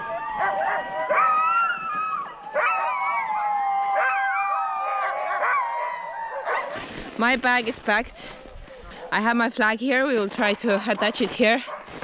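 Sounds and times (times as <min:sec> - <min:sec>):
sled dogs howling: 0:00.0 - 0:06.8.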